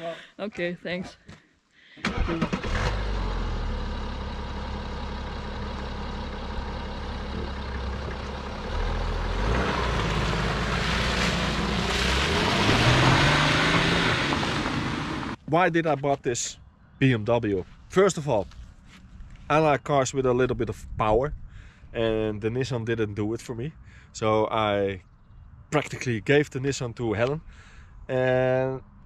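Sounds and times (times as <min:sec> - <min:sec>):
car engine starting and idling: 0:02.0 - 0:15.4
car pulling away: 0:02.0 - 0:15.4
tyres crunching on gravel: 0:09.4 - 0:16.2.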